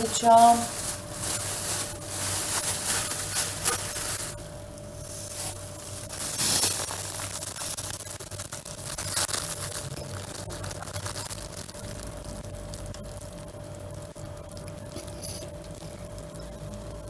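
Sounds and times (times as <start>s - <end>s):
plastic bag crinkling: 0.0s - 12.8s
airy hiss through straw: 0.2s - 4.4s, 5.0s - 7.8s.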